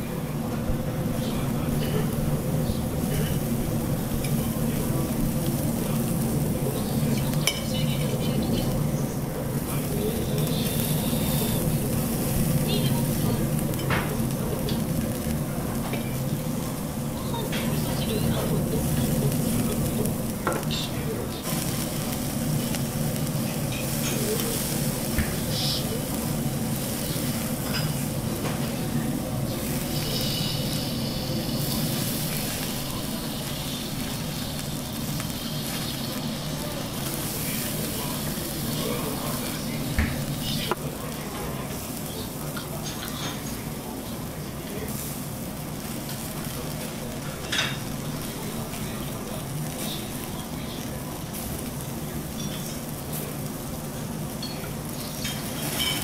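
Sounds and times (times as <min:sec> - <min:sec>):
meat sizzling on grill: 0:00.0 - 0:56.0.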